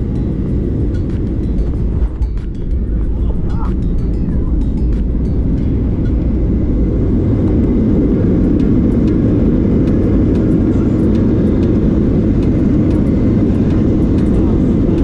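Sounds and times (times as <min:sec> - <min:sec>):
jet engine and wheels rumble: 0:00.0 - 0:15.0.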